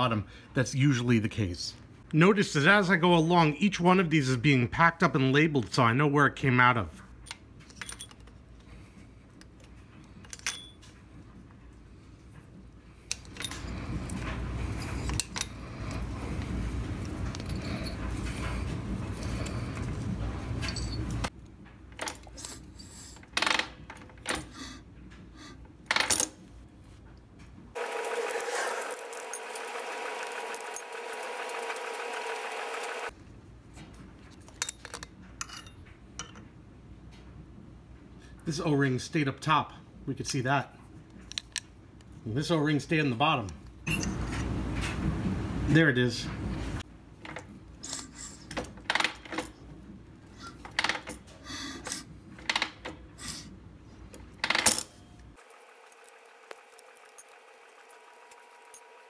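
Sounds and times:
wrench clinking on metal: 0:07.2 - 0:08.4, 0:10.2 - 0:10.9, 0:20.6 - 0:21.3, 0:34.5 - 0:36.4
mechanical whirring with rattle: 0:27.8 - 0:33.1, 0:55.4 - 0:59.0.

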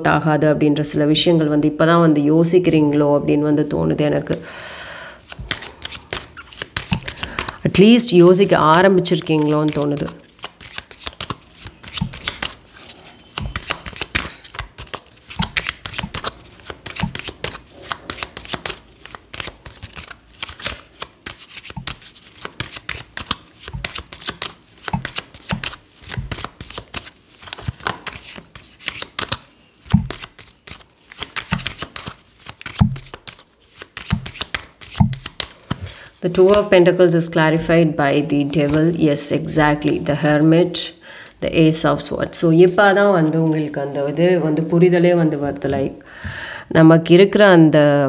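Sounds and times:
cards being shuffled: 0:05.2 - 0:36.7.

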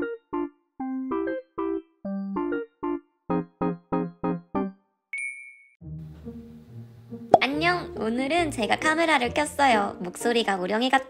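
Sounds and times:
high electronic ding: 0:05.2 - 0:05.8.

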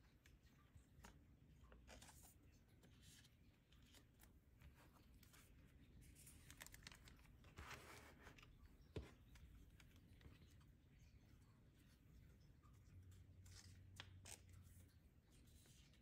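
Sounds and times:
plastic sleeves rustling: 0:00.0 - 0:16.0.

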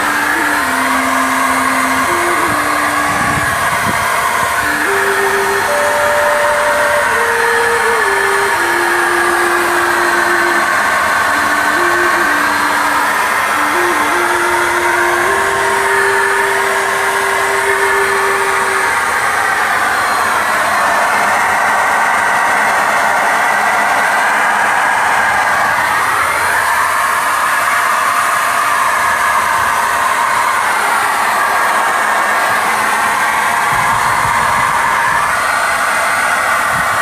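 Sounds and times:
paint spray gun hissing: 0:00.0 - 0:21.5
thin tone changing pitch: 0:00.0 - 0:27.9.

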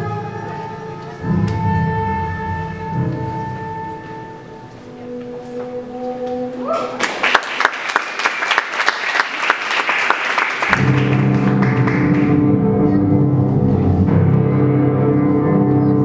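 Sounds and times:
music with deep bass notes: 0:00.0 - 0:06.0, 0:10.8 - 0:16.0
audience applause: 0:06.7 - 0:12.4.

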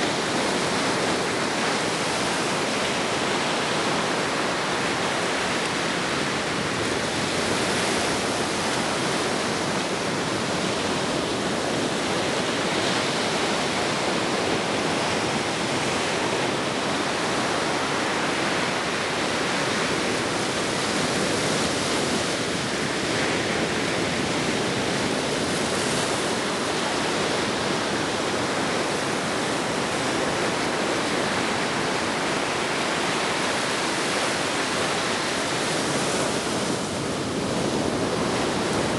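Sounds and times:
ocean surf rushing: 0:00.0 - 0:38.9.

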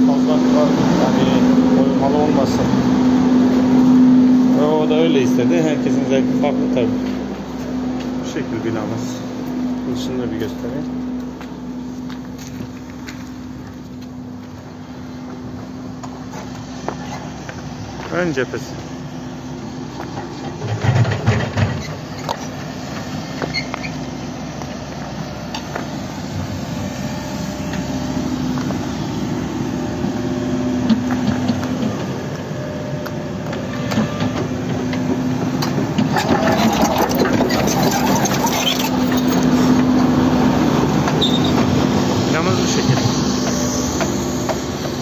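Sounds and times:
excavator diesel engine running: 0:00.0 - 0:45.0
short squeaks and clicks: 0:23.4 - 0:24.0, 0:36.1 - 0:39.5, 0:41.1 - 0:41.6.

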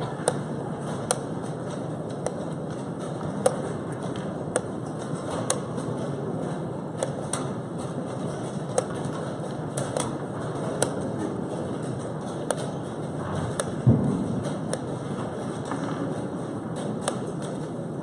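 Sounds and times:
heavy thump: 0:13.8 - 0:14.6.

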